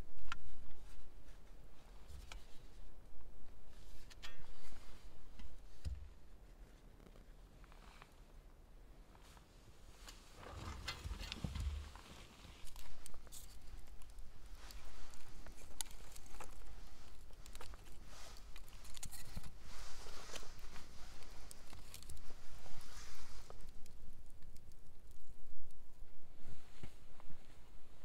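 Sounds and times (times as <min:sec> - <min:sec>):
low rumble of handling: 0:09.1 - 0:28.0
wood fire crackling and popping: 0:10.4 - 0:22.4, 0:23.0 - 0:25.9.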